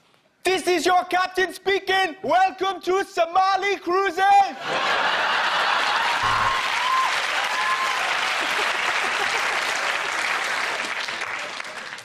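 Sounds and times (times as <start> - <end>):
audience applauding: 5.1 - 12.0.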